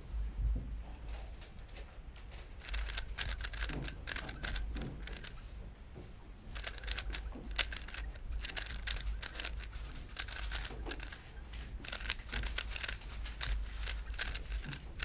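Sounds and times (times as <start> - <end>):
rapid plastic clicking of cube: 2.3 - 5.4, 6.5 - 15.0.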